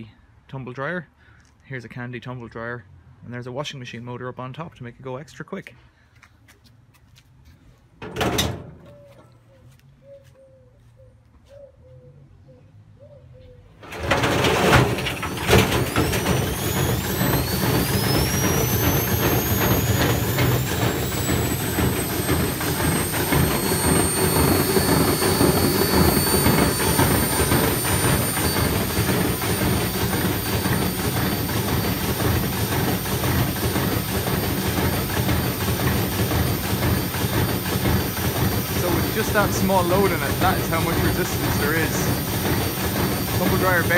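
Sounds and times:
knocks of machine starting: 8.0s - 8.8s, 13.8s - 43.9s
dryer drum clattering: 8.0s - 8.9s, 13.8s - 43.9s
motor whine: 13.8s - 43.9s.

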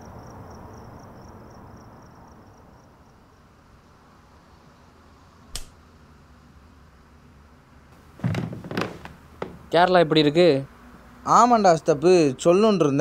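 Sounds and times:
faint cricket chirping: 0.0s - 6.6s
sharp click: 5.5s - 5.8s.

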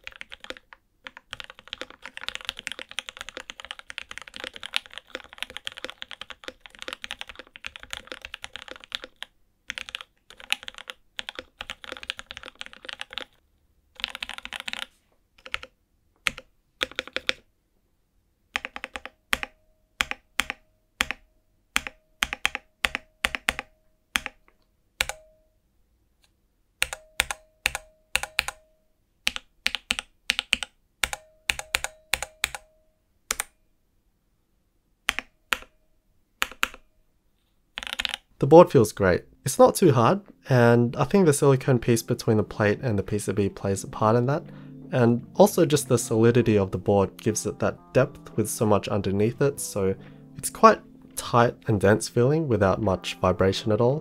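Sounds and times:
mechanical keyboard typing: 0.0s - 13.4s, 14.0s - 17.4s, 18.6s - 21.2s, 21.8s - 24.4s, 25.0s - 25.2s, 26.8s - 28.6s, 29.2s - 32.7s, 33.3s - 33.5s, 35.1s - 35.7s, 36.4s - 36.8s, 37.8s - 38.3s.

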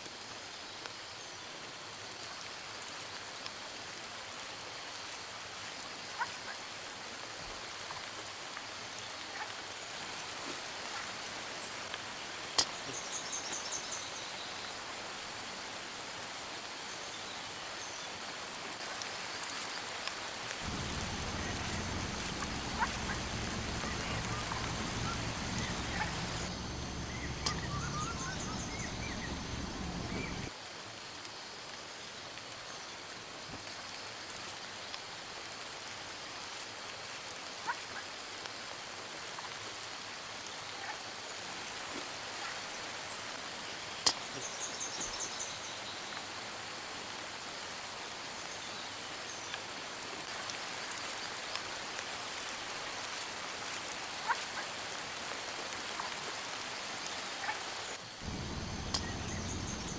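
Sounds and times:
rain hissing in forest: 0.0s - 59.9s
bird chirping: 20.6s - 30.5s, 58.2s - 59.9s
low hum: 20.6s - 30.5s, 58.2s - 59.9s.

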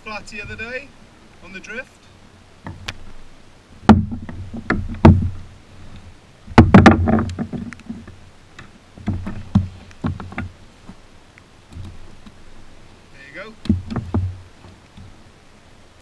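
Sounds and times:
knocks and thumps against kayak: 2.6s - 3.2s, 3.8s - 11.0s, 11.7s - 12.7s, 13.3s - 15.3s.

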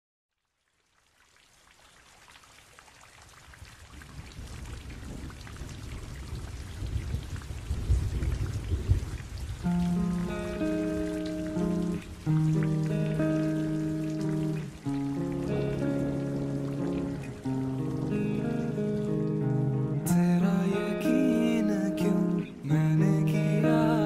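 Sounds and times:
rain: 0.3s - 24.0s
thunder rumbling: 4.0s - 11.7s.

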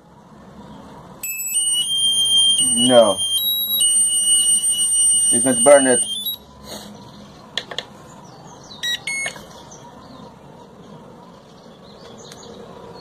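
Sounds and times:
short electronic beeps: 1.2s - 6.4s, 8.8s - 9.4s.

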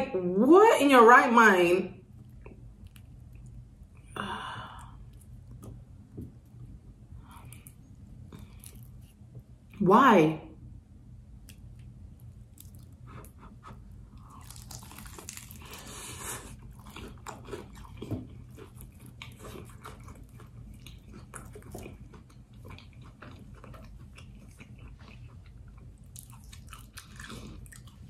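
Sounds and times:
chewing and wet mouth sounds: 2.1s - 9.8s, 11.4s - 28.0s
crunchy bite into fried food: 14.2s - 20.2s.

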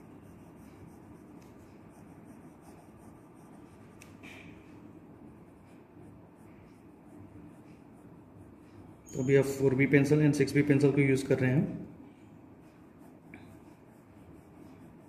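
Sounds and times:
pencil scratching on paper: 0.0s - 4.2s, 4.8s - 9.0s, 12.4s - 15.0s.

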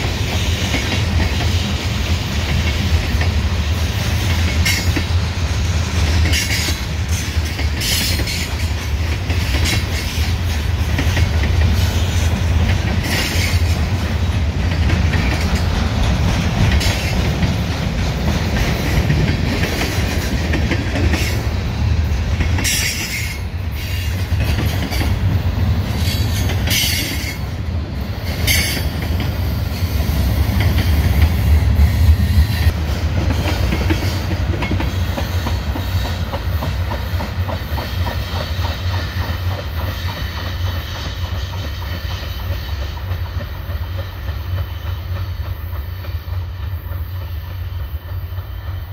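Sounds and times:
freight train rumbling: 0.0s - 48.9s
wheels clacking over rail joints: 6.0s - 27.6s, 32.7s - 48.9s.

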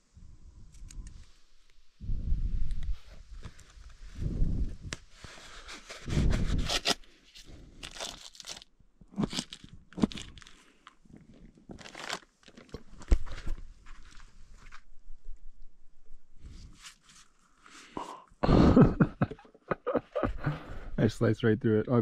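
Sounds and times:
crunching and crinkling handling noise: 4.9s - 15.4s.

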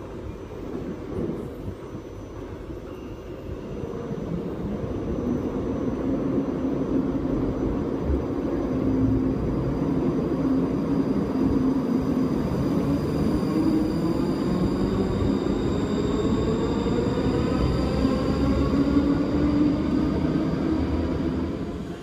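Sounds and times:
train rumble: 0.0s - 22.0s.

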